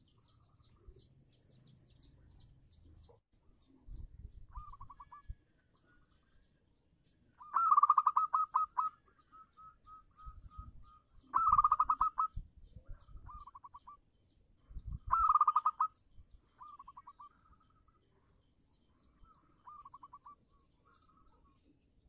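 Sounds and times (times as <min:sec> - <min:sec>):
dove cooing song: 0:03.9 - 0:06.2, 0:07.4 - 0:14.0, 0:14.8 - 0:18.0, 0:19.0 - 0:21.6.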